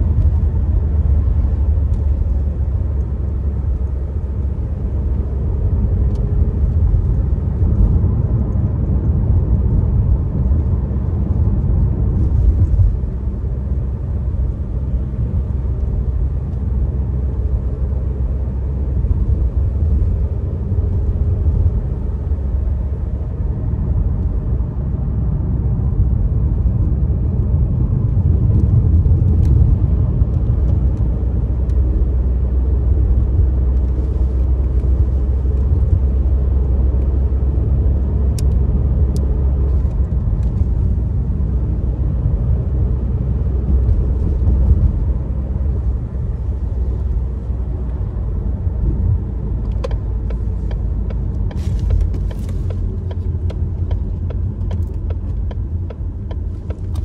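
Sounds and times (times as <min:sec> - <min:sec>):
car engine rumble: 0:00.0 - 0:57.0
road noise inside car: 0:00.0 - 0:57.0.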